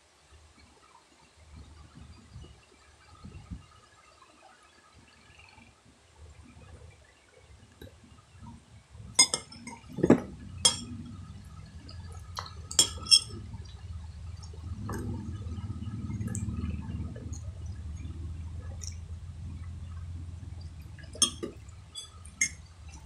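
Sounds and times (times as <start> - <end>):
metal spoon clinking on dishware: 9.2 - 10.9, 12.4 - 13.4, 21.2 - 22.6.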